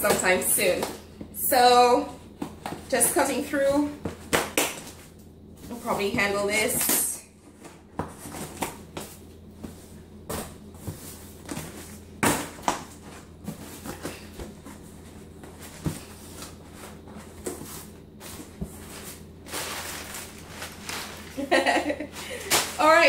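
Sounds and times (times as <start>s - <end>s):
packing paper rustling: 15.6s - 23.0s.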